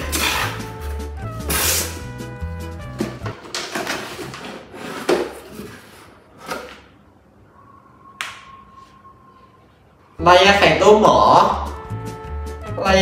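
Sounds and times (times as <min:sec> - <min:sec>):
background music with bass: 0:00.0 - 0:03.3, 0:10.8 - 0:13.0.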